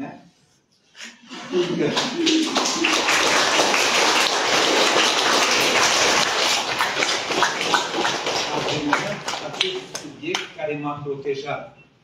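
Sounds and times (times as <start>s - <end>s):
audience applauding: 1.5s - 10.5s.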